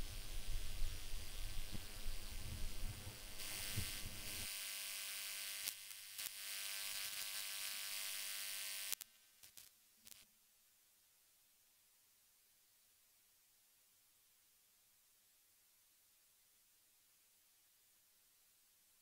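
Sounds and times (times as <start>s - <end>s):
electrical hiss: 0.0s - 10.3s
faint buzzing hum: 0.0s - 19.0s.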